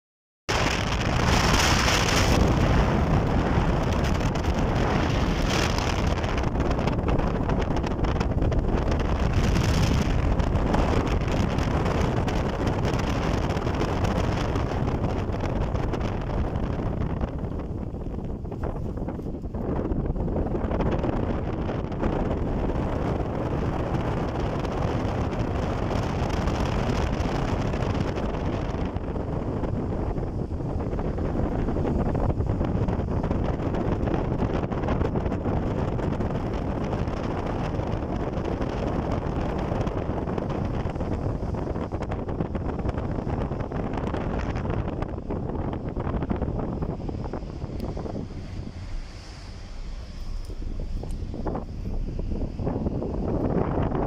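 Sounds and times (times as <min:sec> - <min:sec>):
vehicle road noise: 0:00.5 - 0:54.0
wind rushing over microphone: 0:00.5 - 0:54.0.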